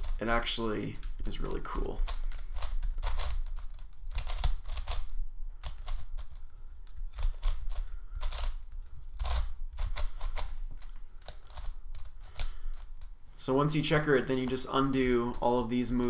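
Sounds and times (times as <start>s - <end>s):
plastic puzzle pieces clacking: 0.0s - 13.1s.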